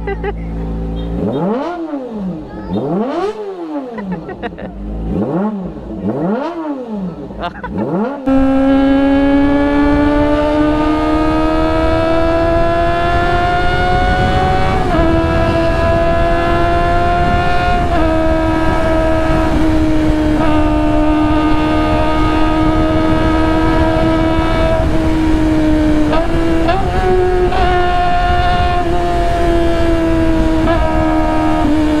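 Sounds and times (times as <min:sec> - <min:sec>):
motorcycle engine at high revs: 0:00.0 - 0:32.0
heavy wind rush: 0:08.2 - 0:32.0.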